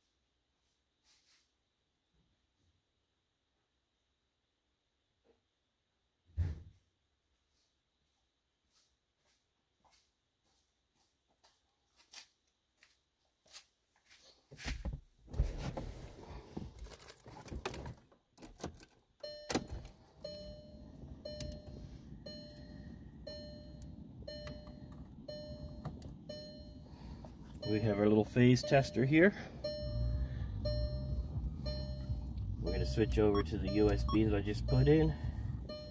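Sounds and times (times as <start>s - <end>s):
dashboard warning chime: 19.2s - 35.9s
steady low hum: 19.3s - 35.9s.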